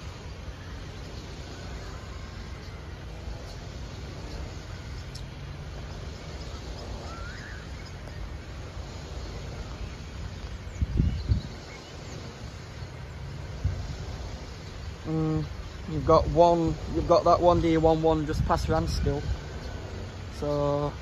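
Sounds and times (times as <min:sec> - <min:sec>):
bird chirp: 0:00.0 - 0:21.0
steady low rumble: 0:00.0 - 0:21.0.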